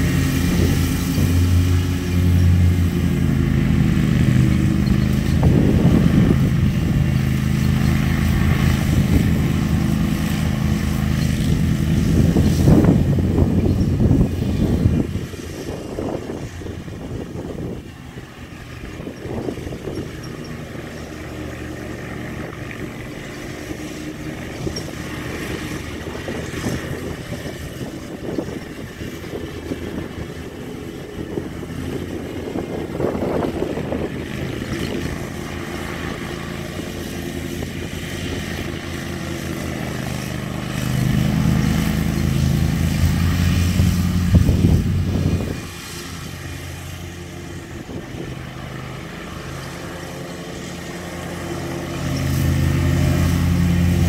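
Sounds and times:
riding mower engine running: 0.0s - 54.0s.

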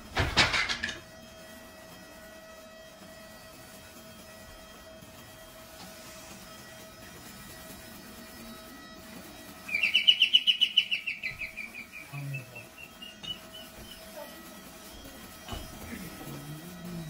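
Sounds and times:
bird chirping trill: 9.7s - 14.1s.

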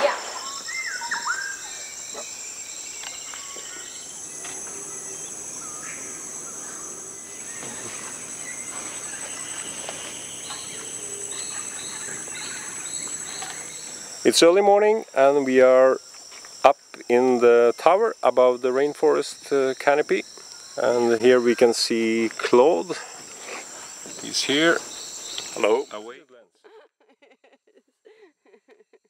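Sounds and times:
bird calls: 0.0s - 14.5s, 22.9s - 26.1s
high-pitched insect drone: 0.0s - 26.2s
higher insect drone: 0.0s - 26.2s.

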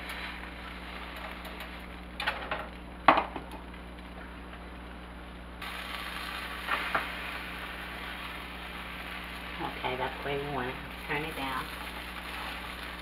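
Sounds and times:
butter sizzling: 0.0s - 13.0s
buns knocking in skillet: 1.1s - 3.7s, 5.6s - 9.6s.

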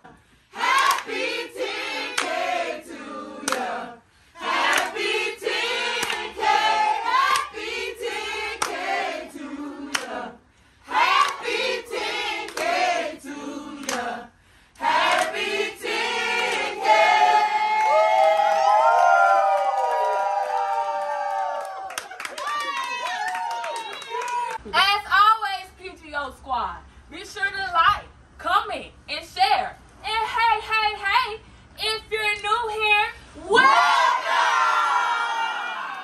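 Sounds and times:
group of people singing: 0.5s - 17.7s
hand claps: 0.7s - 1.1s, 2.1s - 2.4s, 3.4s - 3.7s, 4.6s - 5.0s, 6.0s - 6.4s, 7.3s - 7.5s, 8.6s - 8.8s, 9.9s - 10.2s, 11.2s - 11.5s, 12.5s - 12.8s, 13.8s - 14.0s, 21.7s - 24.6s.

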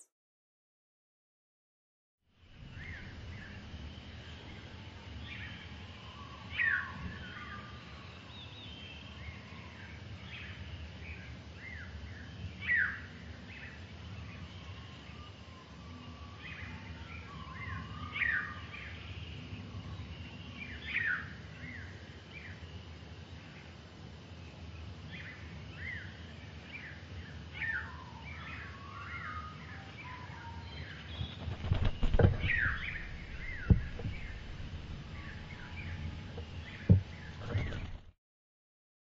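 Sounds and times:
small birds chirping: 2.4s - 38.1s
low background rumble: 30.6s - 38.1s.

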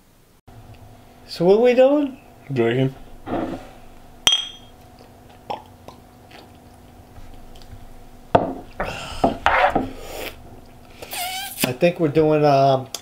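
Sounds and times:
people sipping and swallowing: 4.8s - 7.8s.

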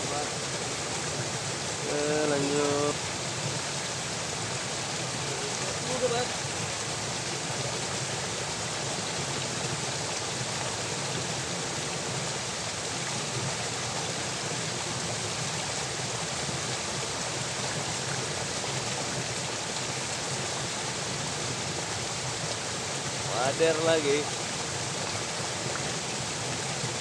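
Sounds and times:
water rushing in a channel: 0.0s - 27.0s.

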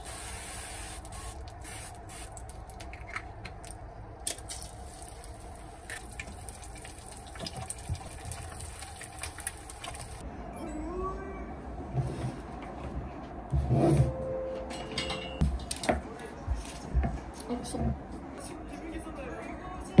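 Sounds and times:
egg sizzling in oil: 4.6s - 10.2s.

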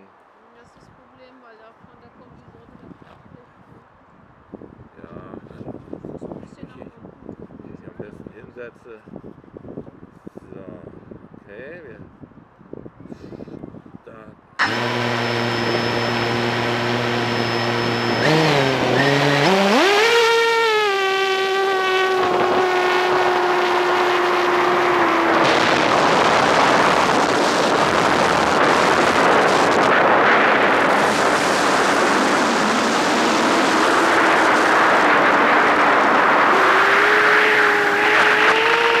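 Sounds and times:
drone motors whining: 14.6s - 39.0s
propeller wash rushing: 14.6s - 39.0s.

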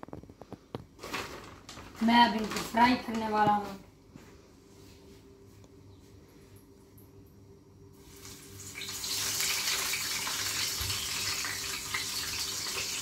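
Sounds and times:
patties sizzling in a frying pan: 8.0s - 13.0s.

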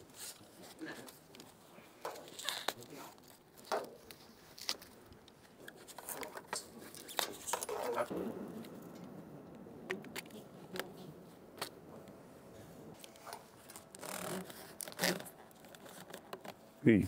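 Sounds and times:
small clicks and scrapes on piping: 0.0s - 8.1s, 13.0s - 16.6s.

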